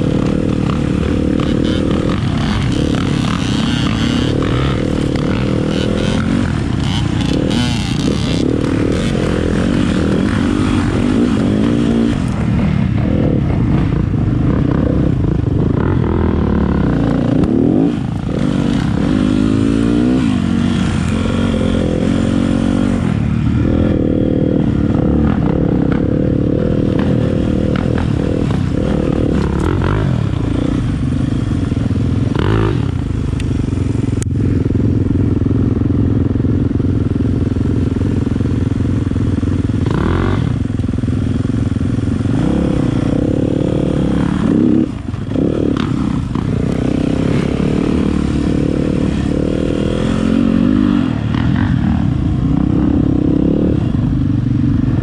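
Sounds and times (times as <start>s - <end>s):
dirt bike engine revving: 0.0s - 34.2s, 37.5s - 54.2s.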